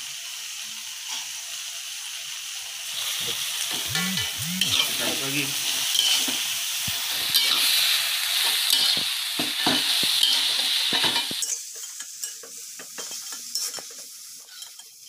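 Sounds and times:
vegetables sizzling in a wok: 0.0 - 15.0
metal spatula scraping a wok: 8.4 - 12.2.

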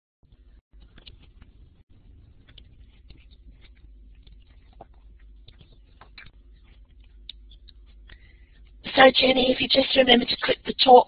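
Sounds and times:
small clicks and rustles: 0.3 - 8.8
steady low hum: 0.3 - 11.0.

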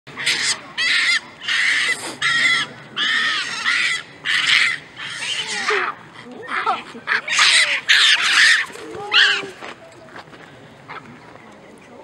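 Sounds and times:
monkeys screaming: 0.1 - 9.6.

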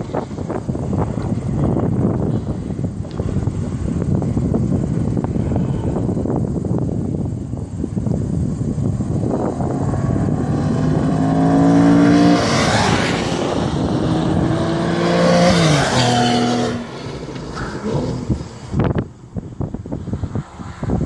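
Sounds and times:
sports cars passing at speed: 9.0 - 21.0.

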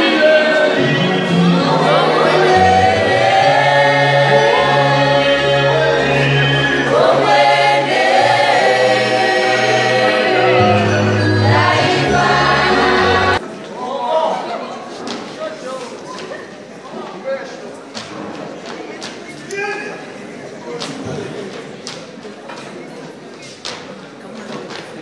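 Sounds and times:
choir singing in harmony: 0.0 - 13.4.

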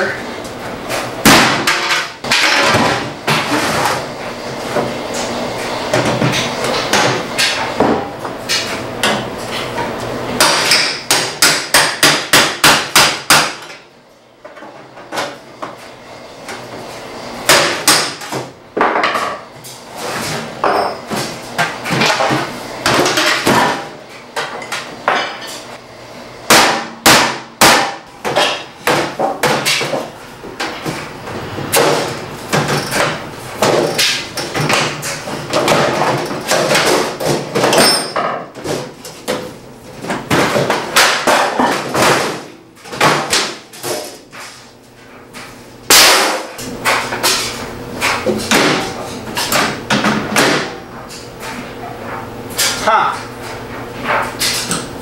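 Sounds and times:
hammer knocking on sheet metal: 10.4 - 13.6, 26.5 - 29.9.

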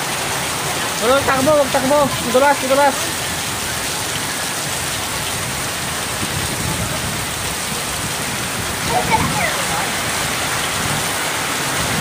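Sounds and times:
heavy rain on concrete: 0.0 - 12.0.

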